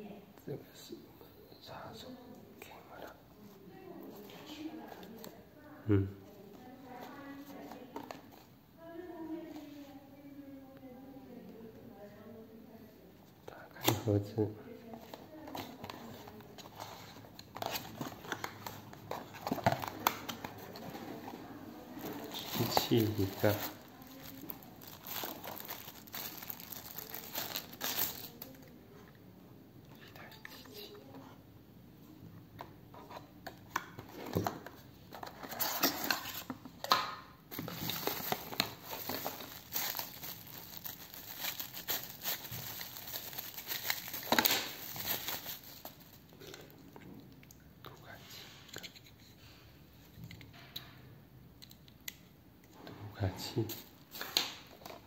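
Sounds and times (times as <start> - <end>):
plastic wrapping crinkling: 15.0 - 21.3, 21.9 - 28.7, 37.5 - 46.4
paperboard box rustling: 37.5 - 46.1.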